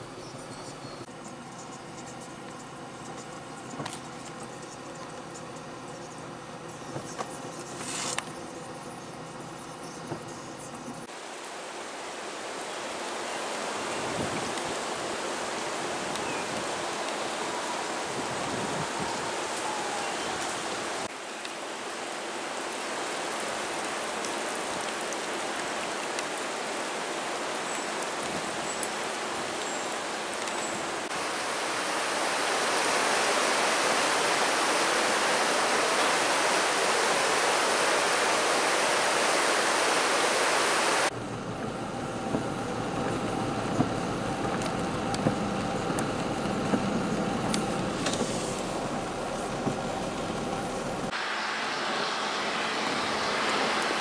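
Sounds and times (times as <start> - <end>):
rushing floodwater: 11.0 - 41.2, 42.1 - 54.0
falling rain: 11.0 - 54.0.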